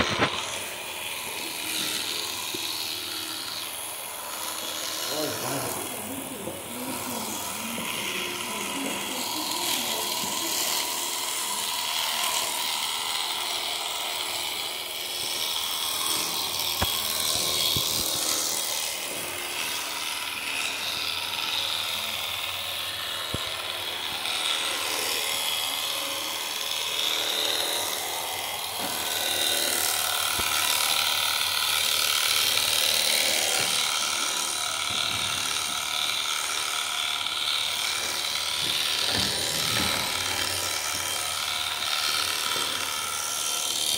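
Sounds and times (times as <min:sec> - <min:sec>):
electric shears clipping fleece: 0:00.0 - 0:43.9.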